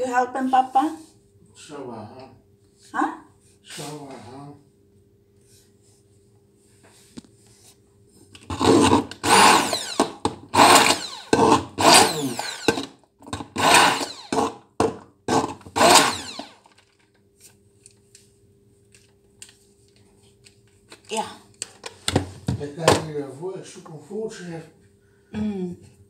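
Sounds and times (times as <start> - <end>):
stick blender motor whirring: 8.4 - 16.8.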